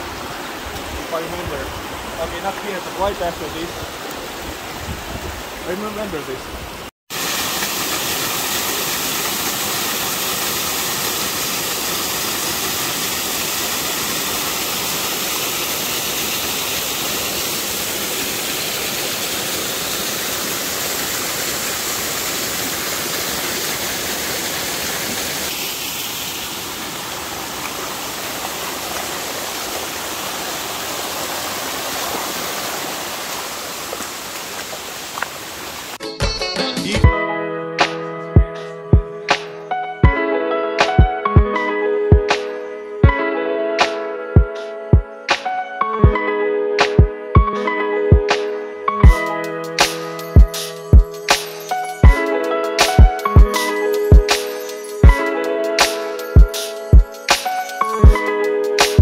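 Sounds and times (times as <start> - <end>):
stream running over stones: 0.0 - 36.0
small waterfall over rocks: 6.7 - 36.0.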